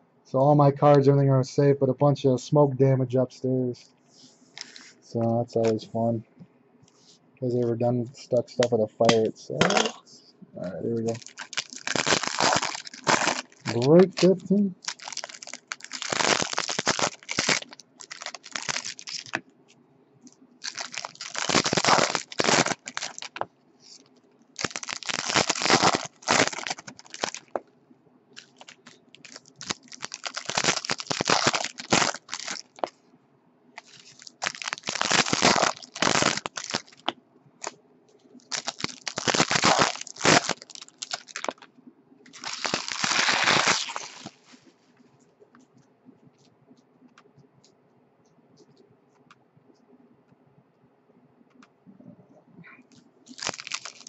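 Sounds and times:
foil wrappers tearing and crinkling: 11.0 - 19.4, 20.6 - 24.0, 24.6 - 27.6, 28.4 - 32.9, 33.8 - 37.1, 38.4 - 41.7, 42.3 - 44.6, 53.3 - 54.0.

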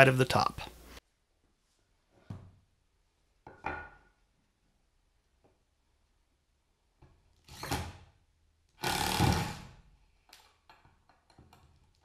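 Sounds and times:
cordless drill driving screws: 7.4 - 8.0, 8.8 - 9.7.

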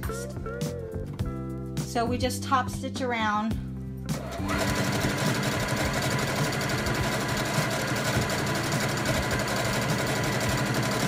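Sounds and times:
sewing machine stitching: 4.1 - 11.0.

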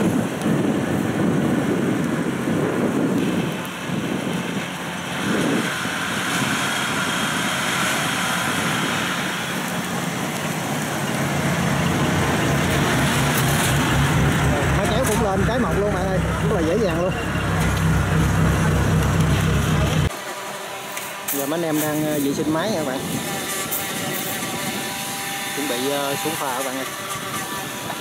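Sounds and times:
diesel engine under load: 3.0 - 20.6.

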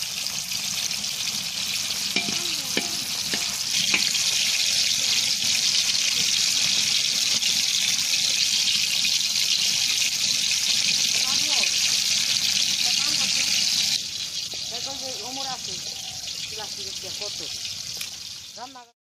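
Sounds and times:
fish sizzling in hot oil: 0.0 - 18.9
metal spatula scraping: 2.1 - 4.9.

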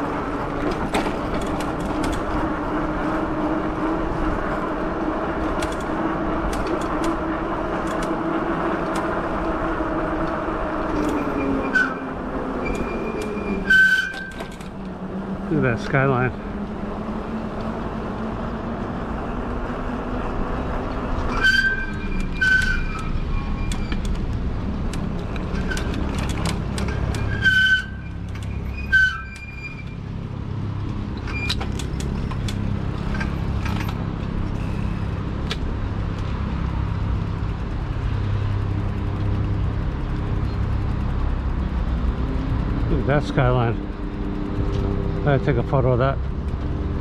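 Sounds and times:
bike brakes squealing: 11.0 - 14.5, 21.2 - 24.1, 26.9 - 30.0.

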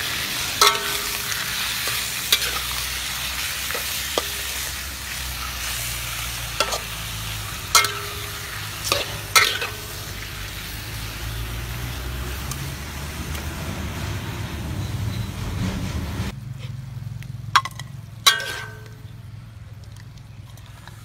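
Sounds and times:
meat sizzling in a wok: 0.0 - 14.4
metal spatula clanking on wok: 0.4 - 10.3, 17.6 - 19.1.

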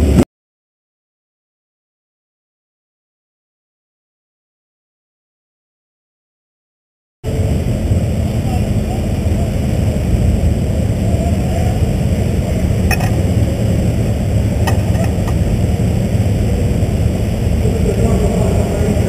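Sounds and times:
race car engine running: 7.3 - 19.0.

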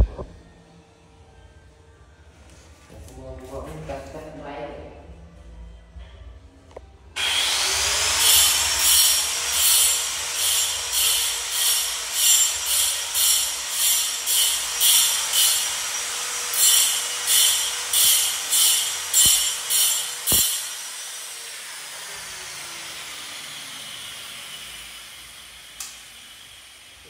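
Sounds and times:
power tool motor whine: 7.2 - 27.0
power tool rasping strokes: 7.2 - 27.0.

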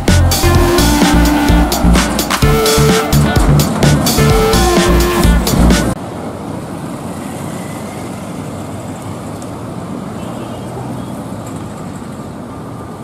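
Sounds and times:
motorbike passing: 0.0 - 9.3
cars passing: 0.0 - 13.0.

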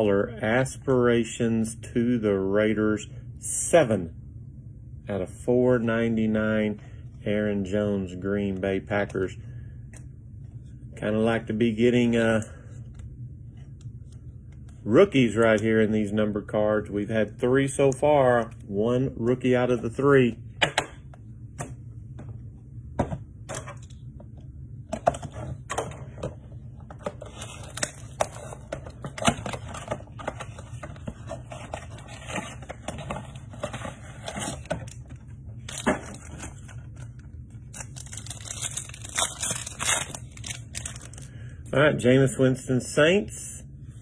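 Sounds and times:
foil wrapper crinkling: 35.7 - 41.4.

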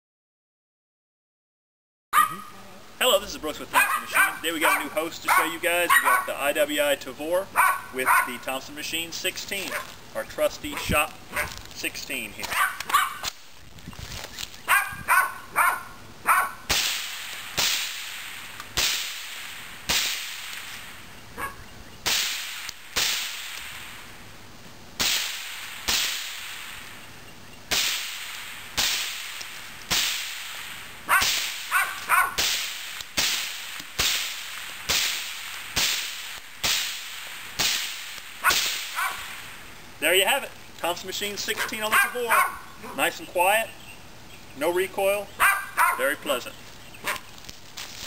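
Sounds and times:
suppressed rifle gunshots: 27.7 - 39.5.

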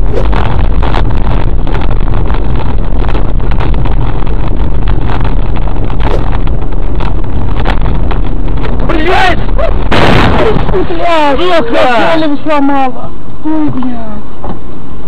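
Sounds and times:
crackles and rattles: 0.0 - 11.9
car engine and road rumble: 0.0 - 13.5.

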